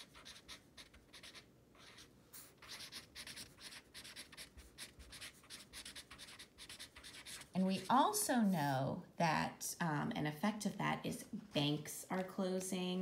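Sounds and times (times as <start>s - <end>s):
marker scratching on paper: 0.0s - 8.1s.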